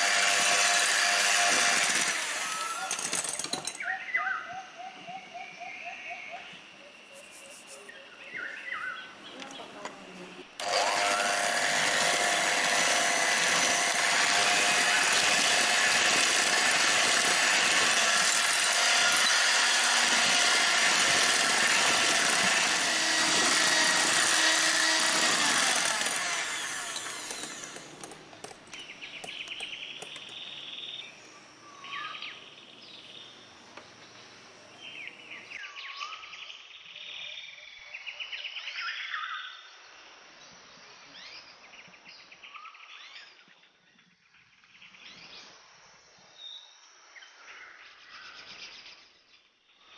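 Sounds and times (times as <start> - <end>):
electric hand mixer whipping: 0.0 - 3.3, 10.6 - 28.0
bird chirps: 3.7 - 9.8, 28.7 - 33.4.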